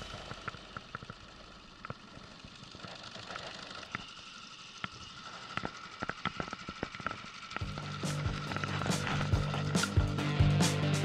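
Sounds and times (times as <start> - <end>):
fishing reel whine: 0.0 - 11.0
fishing reel clicks: 0.1 - 10.0.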